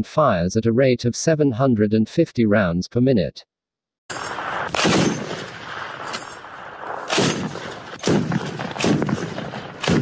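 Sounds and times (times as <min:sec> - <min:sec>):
heavy machine gun firing: 0:04.3 - 0:06.2, 0:06.8 - 0:10.0.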